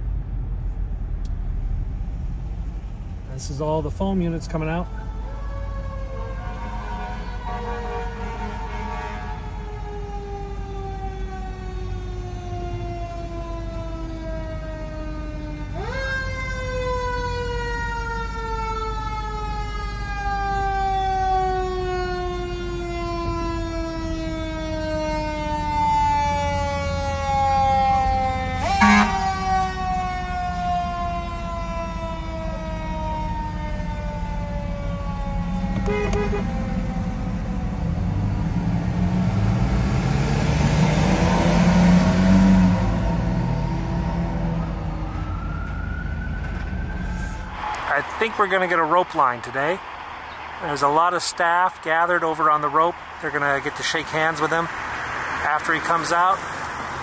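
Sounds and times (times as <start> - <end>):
fire truck siren wailing: 1.8 - 57.0
heavy truck engine revving: 22.0 - 45.3.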